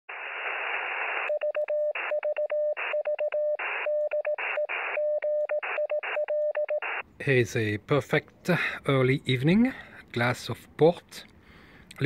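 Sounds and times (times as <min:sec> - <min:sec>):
radio static hiss: 0:00.1 - 0:01.4, 0:03.6 - 0:05.0, 0:06.8 - 0:07.1
morse code tone: 0:01.3 - 0:07.0.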